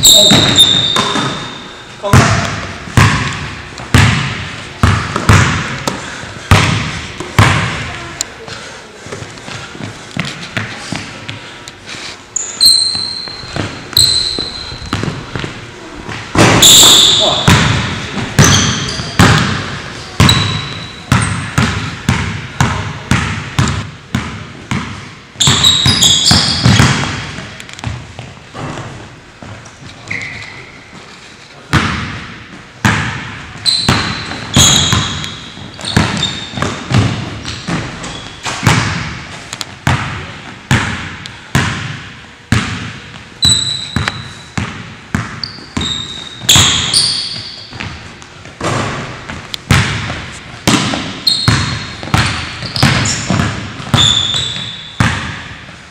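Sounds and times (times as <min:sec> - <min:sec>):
sneakers squeaking on floor: 0:00.0 - 0:08.1, 0:12.3 - 0:41.2, 0:42.5 - 0:55.8
basketball bouncing on hardwood: 0:02.1 - 0:07.8, 0:21.2 - 0:28.3, 0:48.6 - 0:55.4.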